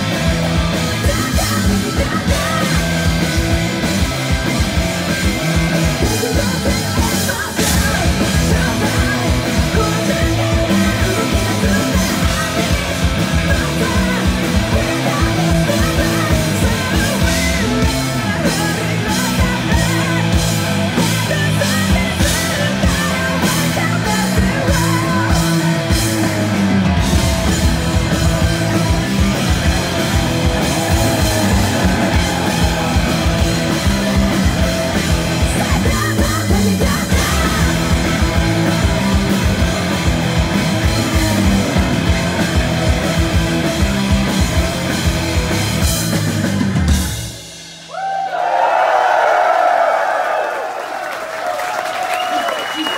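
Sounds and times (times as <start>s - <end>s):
live hard rock band: 0.0s - 49.2s
crowd cheering and whistling: 28.2s - 36.4s, 47.9s - 52.9s.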